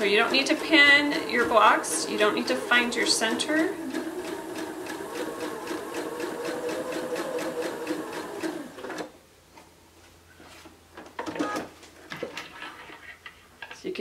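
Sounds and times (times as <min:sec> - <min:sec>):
sewing machine stitching: 0:00.0 - 0:09.1.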